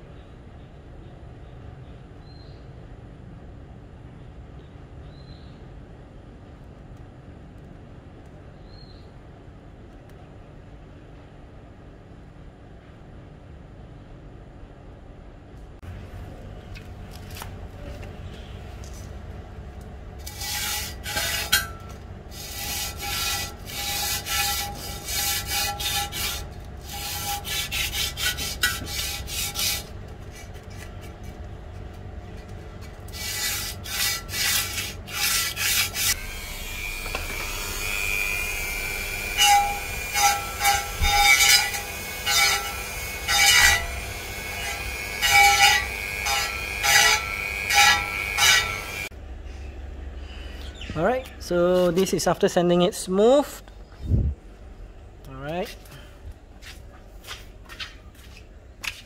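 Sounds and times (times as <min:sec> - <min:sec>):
hand sanding rubbing strokes: 0:20.2 - 0:21.7, 0:22.3 - 0:31.4, 0:32.8 - 0:37.6
sanding drum grinding on metal: 0:20.2 - 0:31.4, 0:32.3 - 0:49.1
rotary tool motor whine: 0:35.2 - 0:49.1.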